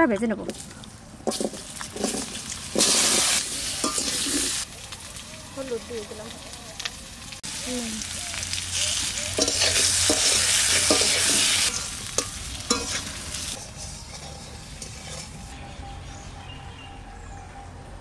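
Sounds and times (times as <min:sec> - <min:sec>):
spatula scraping a wok: 0:01.3 - 0:04.6, 0:09.3 - 0:15.6
potatoes sizzling in oil: 0:01.3 - 0:15.5.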